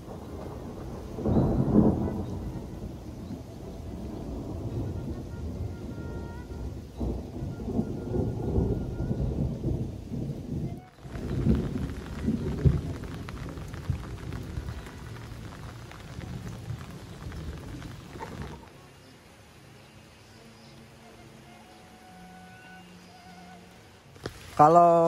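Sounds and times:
low uneven rumble: 0:00.0 - 0:20.6
rain falling on plants and roof: 0:00.0 - 0:25.0
close crisp patter of drops: 0:10.8 - 0:18.7.

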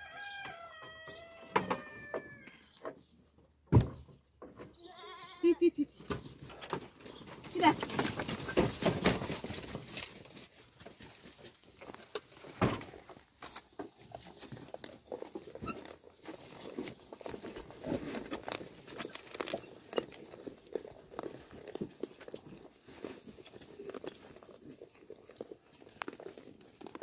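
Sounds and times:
goats chewing straw: 0:06.3 - 0:27.0.

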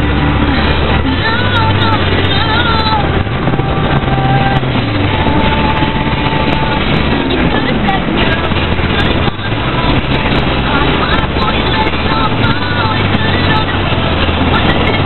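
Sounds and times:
car road and engine noise: 0:00.0 - 0:15.0.

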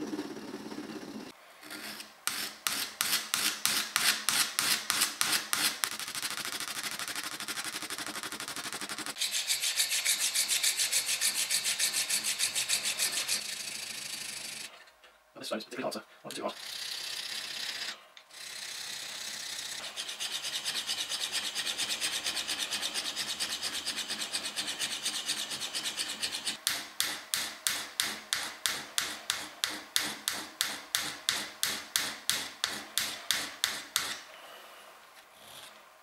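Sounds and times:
steel scraping on stone: 0:09.1 - 0:14.7, 0:16.4 - 0:26.6.

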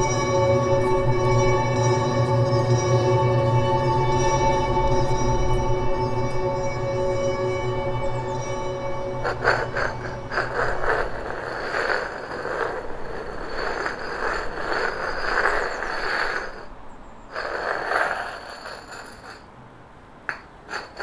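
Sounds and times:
rough scraping noise: 0:08.5 - 0:19.5, 0:20.3 - 0:21.0.

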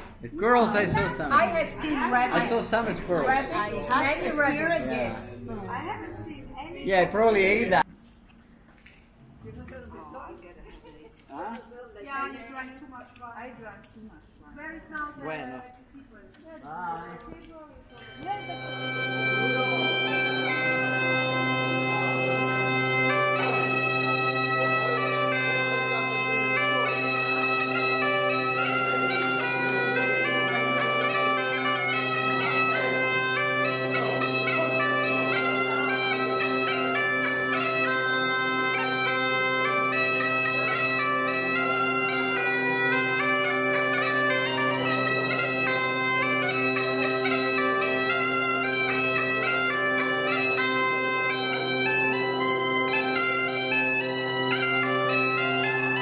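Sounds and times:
bagpipe melody over drone: 0:00.7 - 0:06.0, 0:17.9 - 0:56.0.

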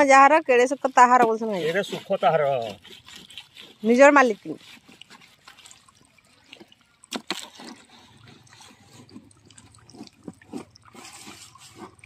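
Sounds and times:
water trickling and splashing from pipe: 0:00.0 - 0:12.0.

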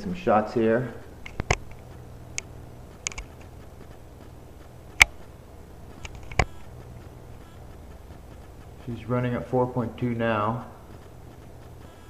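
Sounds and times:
computer pump and fans humming: 0:00.0 - 0:12.0
sharp clicks: 0:01.2 - 0:08.9.

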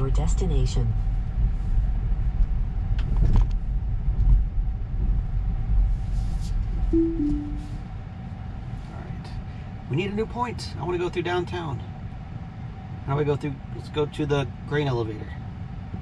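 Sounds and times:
road and tyre rumble: 0:00.0 - 0:06.9
two-note falling chime: 0:07.0 - 0:07.7.

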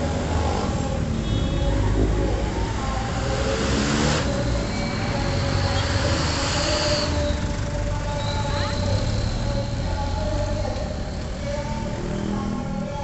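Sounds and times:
traffic engines rumbling: 0:00.0 - 0:13.0.

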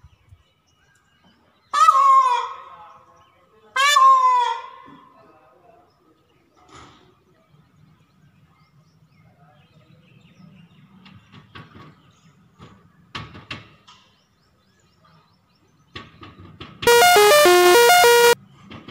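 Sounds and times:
loud musical jingle: 0:16.9 - 0:18.4.

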